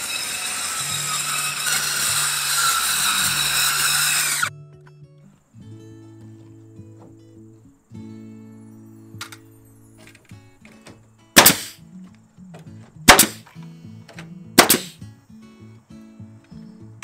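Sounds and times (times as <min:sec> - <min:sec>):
nail gun bangs: 0:11.4 - 0:11.8, 0:13.1 - 0:13.5, 0:14.1 - 0:15.0
nailer clicking against board: 0:14.1 - 0:15.0.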